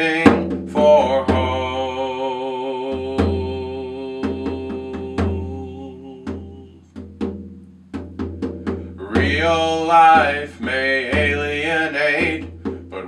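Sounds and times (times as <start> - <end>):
man singing a held note: 0.0 - 6.9, 8.8 - 13.0
hand drum slapped: 6.2 - 13.0.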